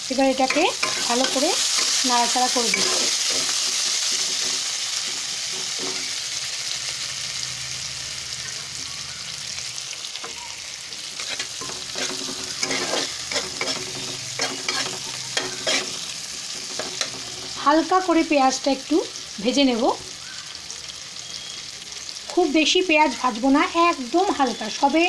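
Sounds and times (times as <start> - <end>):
onions sizzling in hot oil: 0.0 - 25.0
metal spatula scraping a pan: 0.4 - 6.3, 11.0 - 17.6.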